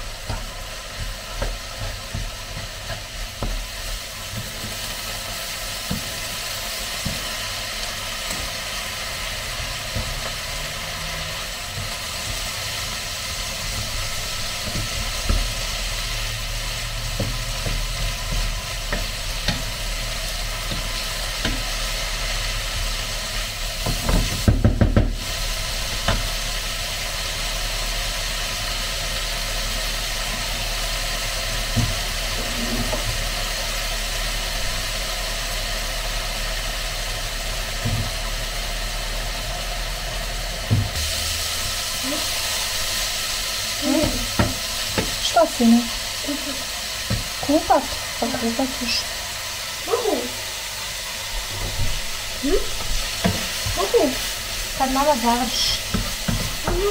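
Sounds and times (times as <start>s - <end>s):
meat sizzling in a frying pan: 0.0s - 56.9s.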